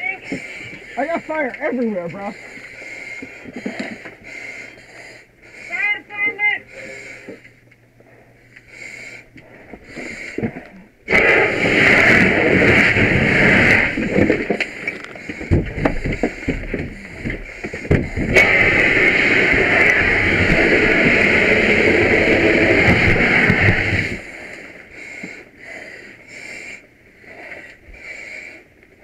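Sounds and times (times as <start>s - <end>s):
loud rushing hiss: 11.1s - 14.2s, 17.5s - 24.5s.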